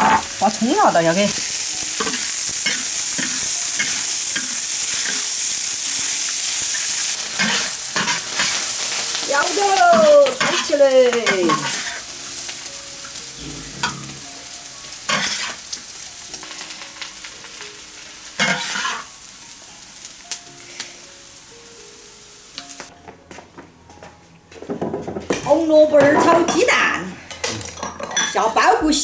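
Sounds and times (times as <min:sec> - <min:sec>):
spatula scraping and knocking wok: 0:00.0 - 0:12.1, 0:13.2 - 0:15.7, 0:18.4 - 0:19.1
stir-fry sizzling in a wok: 0:00.0 - 0:22.9.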